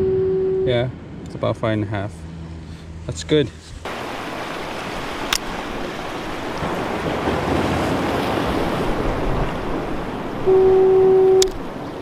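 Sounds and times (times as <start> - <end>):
surf washing on rocky shore: 3.8 - 12.0.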